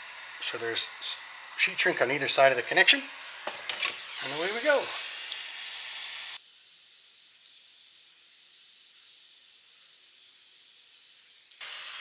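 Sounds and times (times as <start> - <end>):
soldering iron tip hissing: 6.3 - 11.7.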